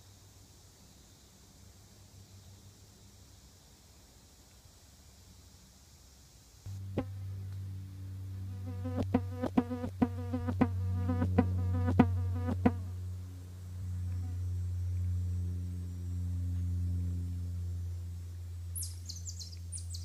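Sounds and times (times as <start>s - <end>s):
flying insect buzzing: 8.3s - 13.2s.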